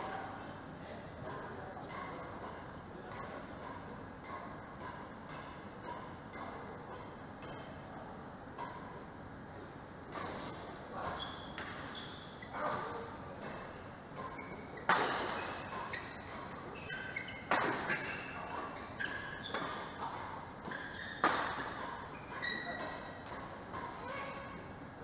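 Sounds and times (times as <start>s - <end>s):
rackets hitting shuttlecock: 1.2s - 7.7s, 8.5s - 9.0s, 13.4s - 24.5s
shoes squeaking on court: 10.2s - 24.5s.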